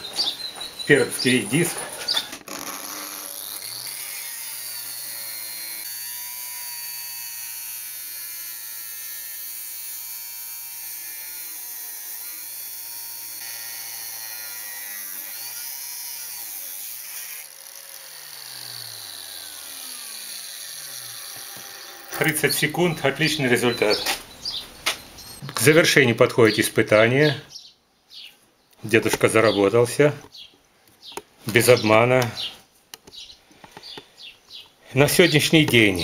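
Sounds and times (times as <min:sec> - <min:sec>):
angle grinder cutting steel: 0:02.4 - 0:24.0.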